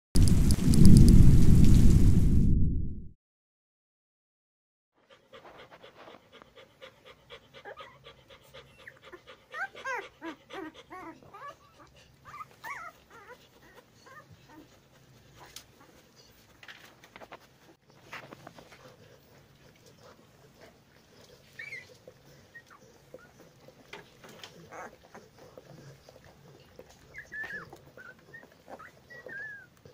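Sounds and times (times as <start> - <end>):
dog panting: 5.0 - 29.9
puppies squeaking and whimpering: 7.6 - 29.9.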